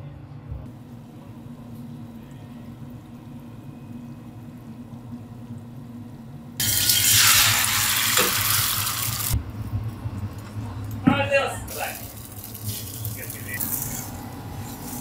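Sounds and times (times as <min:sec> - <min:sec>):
faint deep-frying: 0:00.7 - 0:11.0, 0:11.7 - 0:15.0
loud hissing sizzle: 0:06.6 - 0:09.4, 0:11.7 - 0:15.0.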